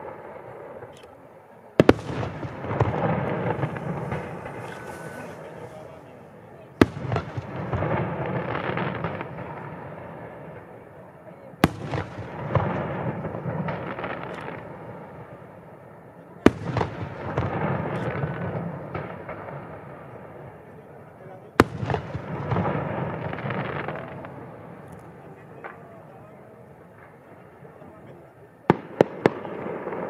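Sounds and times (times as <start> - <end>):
distant firework booms: 1.8 - 10.8, 11.6 - 15.8, 16.4 - 20.6, 21.6 - 24.9
crackling rumble: 1.8 - 10.9, 21.7 - 30.0.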